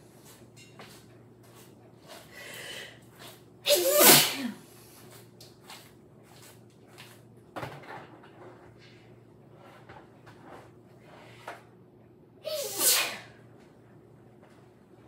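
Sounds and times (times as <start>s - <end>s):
woman sneezing: 3.7s - 4.7s, 12.4s - 13.4s.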